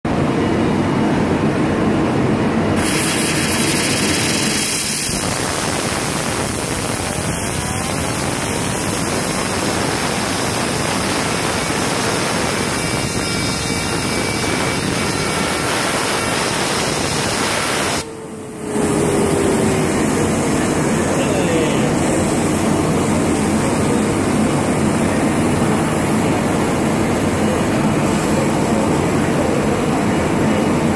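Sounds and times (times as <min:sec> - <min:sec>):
air blow gun hissing: 0:02.8 - 0:23.3
whine of spinning bearing: 0:03.0 - 0:25.9.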